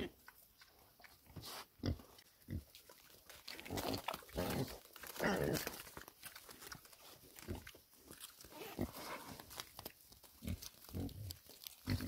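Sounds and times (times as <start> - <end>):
pigs grunting: 3.5 - 5.9, 10.4 - 12.0.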